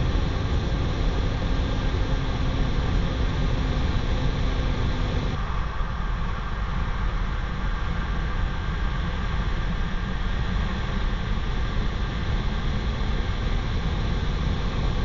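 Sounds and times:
jet engines roaring: 0.0 - 5.4.

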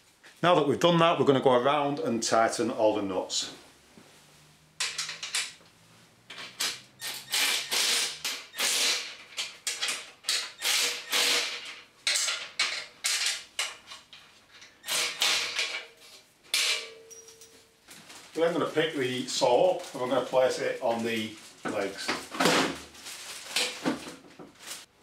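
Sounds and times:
electric ratchet bursts: 6.6 - 9.3, 10.3 - 11.8, 14.8 - 15.8.

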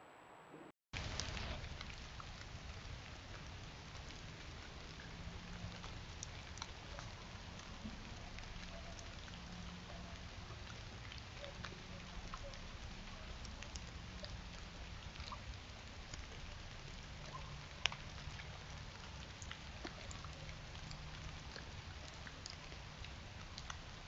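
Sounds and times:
faint ticks and clicks: 1.0 - 24.0.

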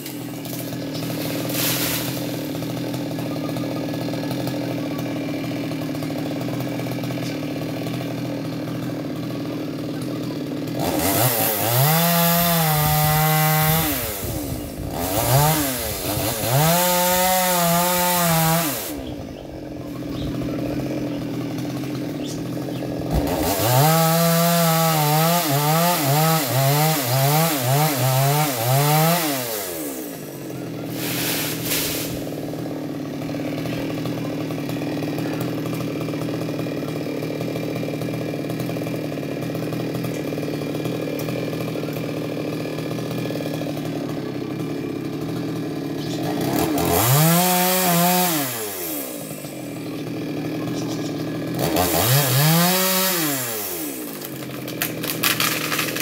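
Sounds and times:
chainsaw idling and revving: 0.0 - 56.0.

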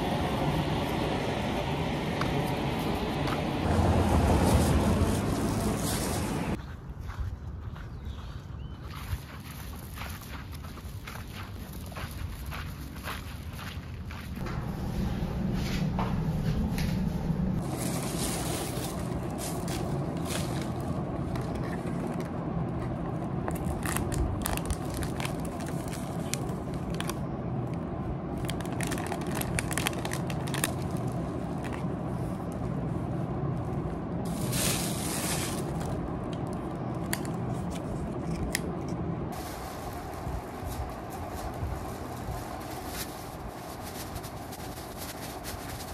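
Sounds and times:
steady low hum: 0.0 - 6.6, 10.3 - 45.7
plastic packaging rustling: 17.0 - 22.3, 23.4 - 27.2, 28.4 - 31.9, 34.3 - 38.5, 39.3 - 45.9.

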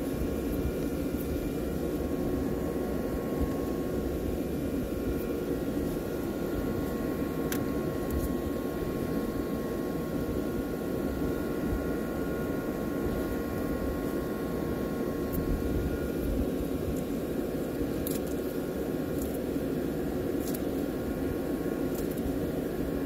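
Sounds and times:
boat machinery droning: 0.0 - 23.0
faint whine tones: 0.0 - 23.0.

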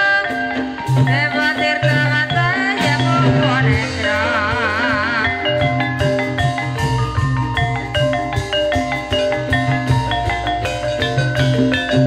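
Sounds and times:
person singing with vibrato: 0.0 - 6.6
metallophones ringing: 0.0 - 12.0.

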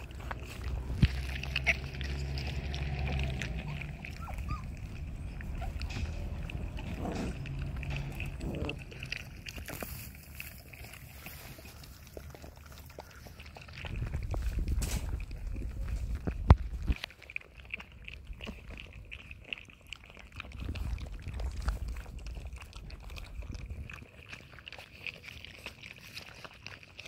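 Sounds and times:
low rumble: 0.0 - 12.3, 13.8 - 17.0
puppies lapping milk: 0.0 - 27.0.

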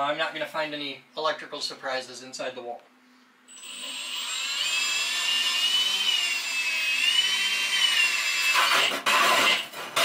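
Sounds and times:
drill motor whine: 3.5 - 9.6.

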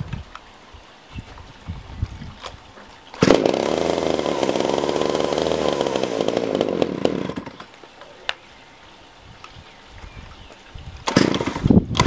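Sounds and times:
chainsaw engine running: 3.2 - 7.7, 11.1 - 12.0.

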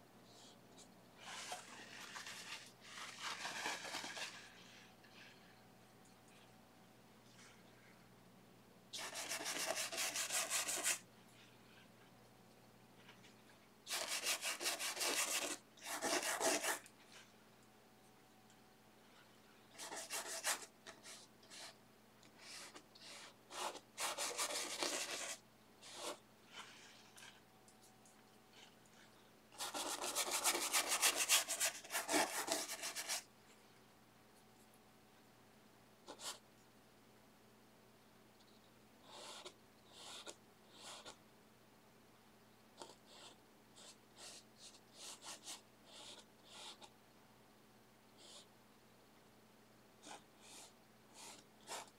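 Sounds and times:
paintbrush scrubbing on canvas: 1.2 - 5.3, 9.0 - 11.0, 13.9 - 17.3, 19.8 - 21.8, 22.4 - 27.4, 29.6 - 33.2.

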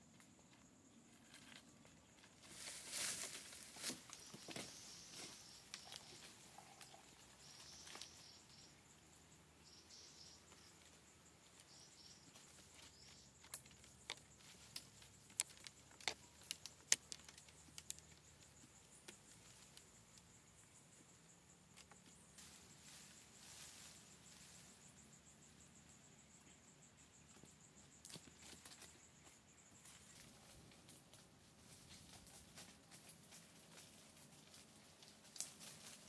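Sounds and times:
high insect drone: 0.0 - 36.0
soft rustles: 2.3 - 6.8.

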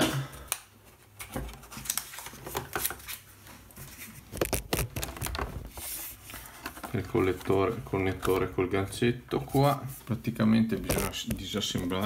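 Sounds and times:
plastic clicks and scrapes: 4.3 - 5.7, 10.8 - 12.0.

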